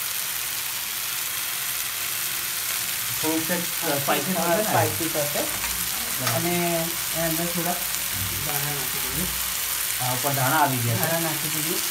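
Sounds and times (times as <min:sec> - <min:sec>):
vegetables sizzling in a frying pan: 0:00.0 - 0:11.9.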